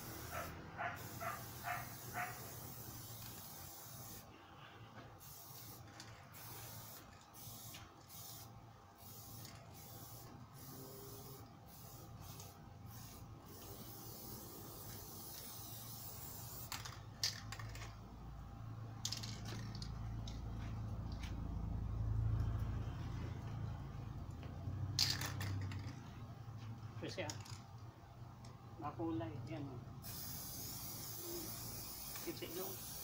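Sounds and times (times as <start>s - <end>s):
spray paint can hissing: 0.0s - 4.3s, 5.2s - 17.9s, 30.0s - 33.0s.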